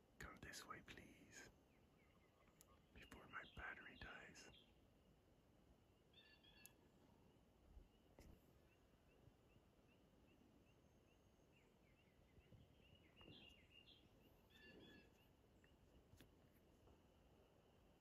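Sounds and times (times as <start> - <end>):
distant animal chirping: 6.1 - 6.8, 12.9 - 15.4.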